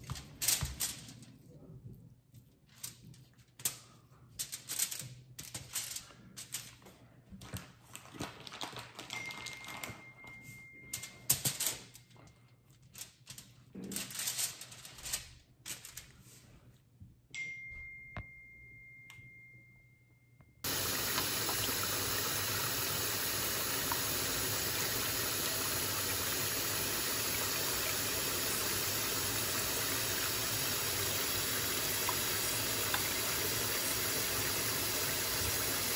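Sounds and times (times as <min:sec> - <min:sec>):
aluminium foil crinkling: 0:07.6 - 0:10.0, 0:11.5 - 0:16.4
plastic packaging crinkling: 0:07.8 - 0:10.0
faint steady high tone: 0:09.1 - 0:11.3, 0:17.3 - 0:21.3.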